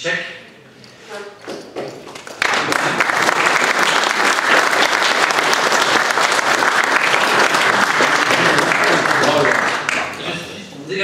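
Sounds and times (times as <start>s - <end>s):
audience applauding: 1.7s - 10.5s.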